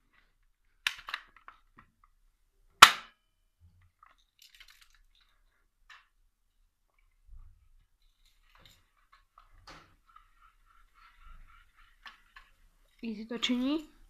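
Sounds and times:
airsoft gun shot: 2.8 - 3.2.

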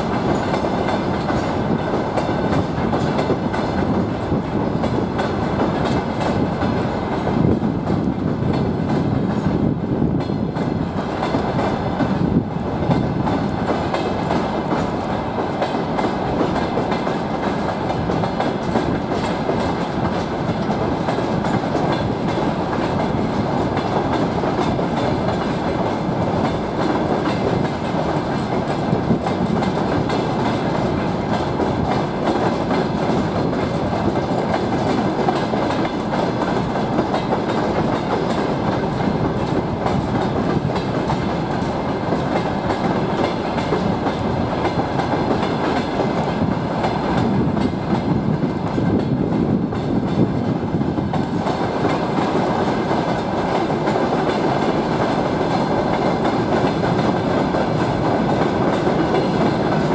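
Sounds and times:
train wheels rumbling on rails: 0.0 - 59.9
wheels clacking over track: 0.0 - 59.9.

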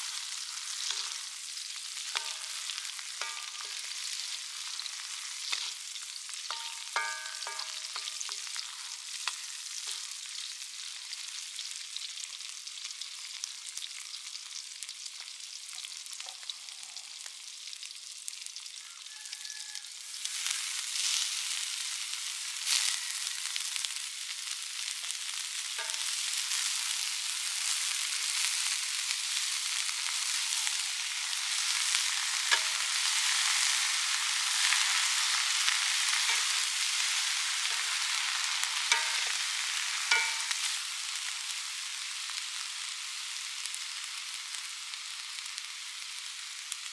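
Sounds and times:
spatula scraping a wok: 0.0 - 10.3, 25.8 - 40.9
vegetables sizzling in a wok: 0.0 - 46.9.

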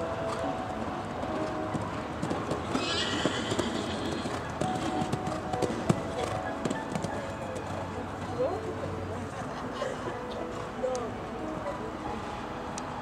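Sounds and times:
horse hoofbeats cantering on sand: 1.2 - 7.9.

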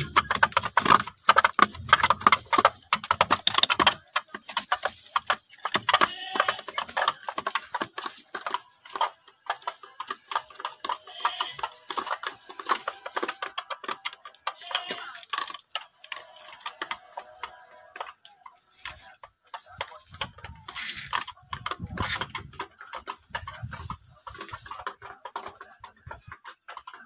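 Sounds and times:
turkeys pecking at feed: 0.0 - 27.0.

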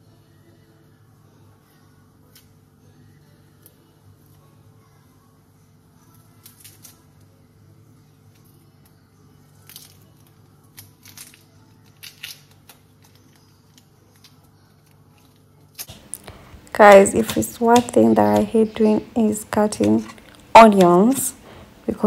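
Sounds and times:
onion skin crackling: 9.5 - 22.0
faint steady hum: 13.4 - 22.0.

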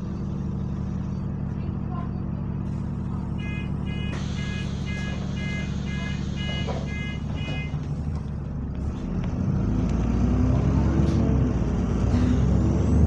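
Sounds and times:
diesel engine idling: 0.0 - 9.9
door warning beeps: 3.4 - 7.8.

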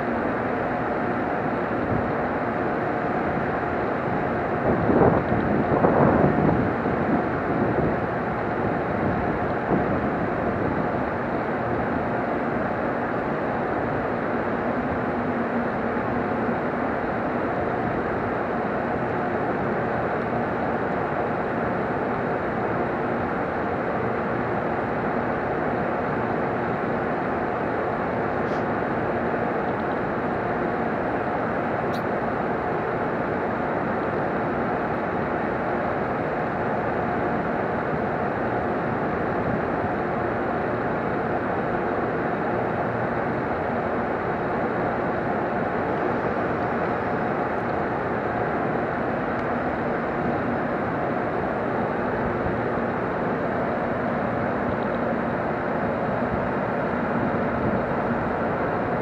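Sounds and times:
electric train whirring hum: 0.0 - 59.0.

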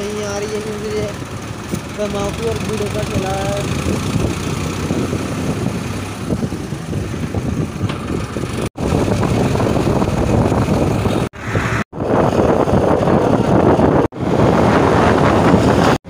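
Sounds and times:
tractor diesel engine running: 0.0 - 11.3
wind on microphone: 3.1 - 16.0.

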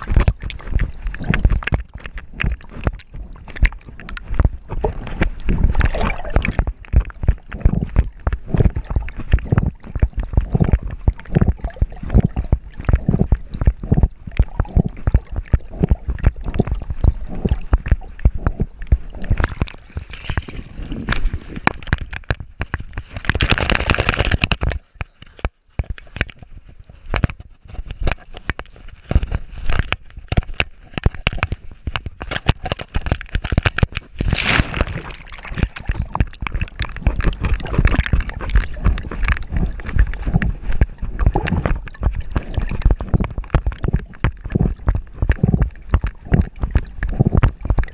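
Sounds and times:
water splash: 0.0 - 25.4, 29.6 - 47.9
pool water sloshing and gurgling: 0.0 - 47.9.

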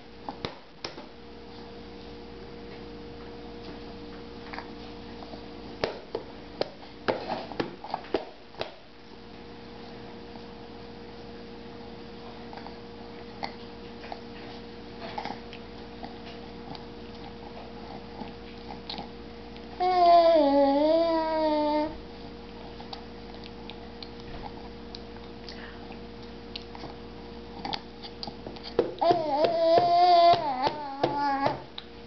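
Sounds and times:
steady electrical hum: 0.0 - 32.0
baby vocalizing: 29.0 - 31.6.

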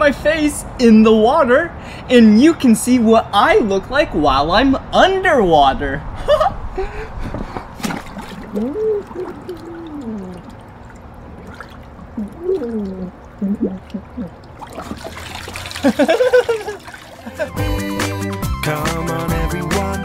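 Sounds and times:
water splashing and trickling: 7.7 - 17.7
man's muffled voice underwater: 8.5 - 10.5.

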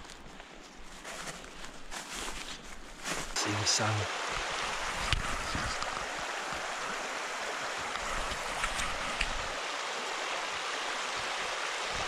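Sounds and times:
river rushing over gravel: 3.3 - 12.0.

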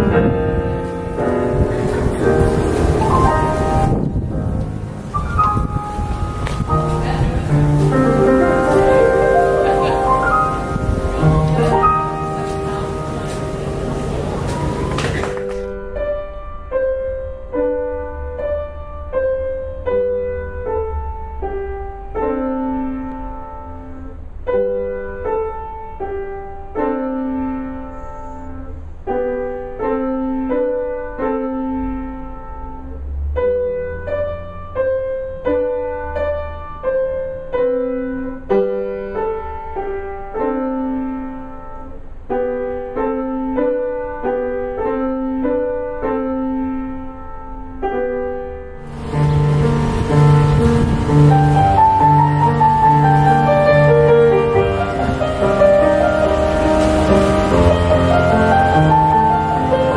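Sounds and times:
piano playing simple piece: 0.0 - 59.9.

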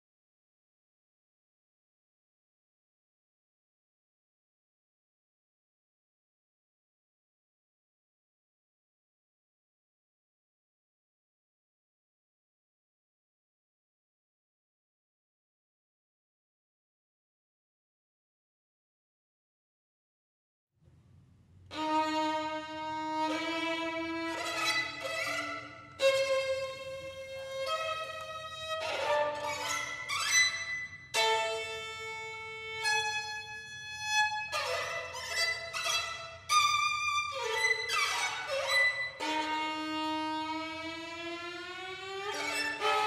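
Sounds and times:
violin playing slow bowed notes: 21.7 - 43.0.

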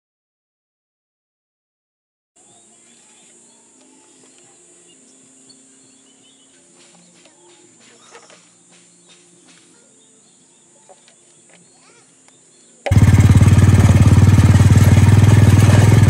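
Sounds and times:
steady high hiss: 2.4 - 12.9
birds chirping: 2.4 - 16.0.

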